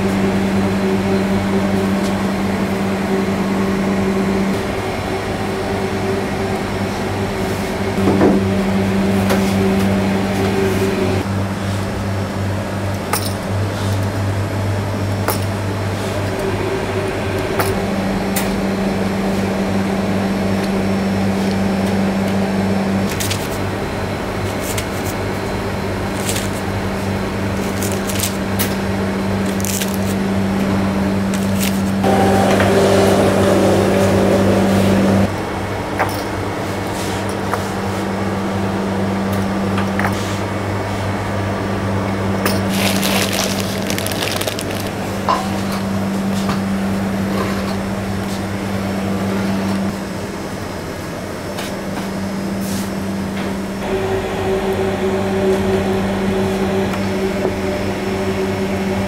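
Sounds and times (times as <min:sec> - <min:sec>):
low machine hum: 0:00.0 - 0:59.0
rough machine noise: 0:24.6 - 0:35.3, 0:42.4 - 0:45.8.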